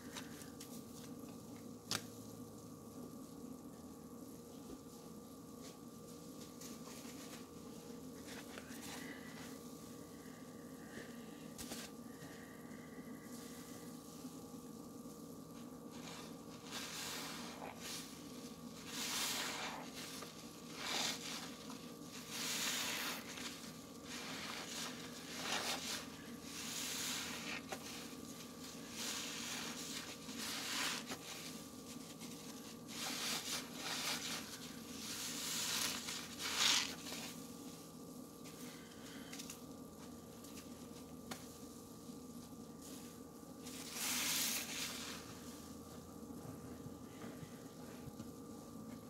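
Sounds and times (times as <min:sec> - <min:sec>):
wet sponge squelching: 0:15.9 - 0:37.3.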